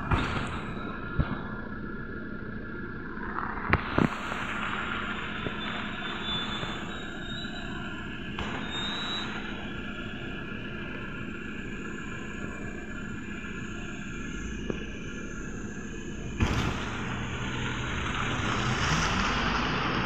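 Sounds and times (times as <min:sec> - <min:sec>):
street traffic: 0:00.0 - 0:20.0
trolleybus humming: 0:04.0 - 0:20.0.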